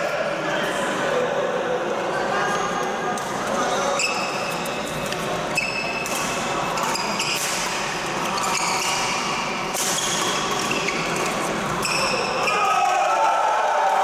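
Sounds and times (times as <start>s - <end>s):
sneakers squeaking on court: 3.8s - 12.5s
racket hitting shuttlecock: 8.7s - 11.0s.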